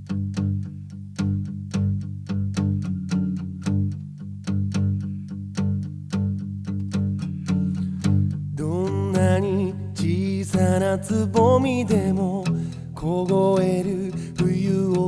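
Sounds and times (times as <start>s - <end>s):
picked notes: 0.0s - 15.0s
sustained bass line: 7.6s - 15.0s.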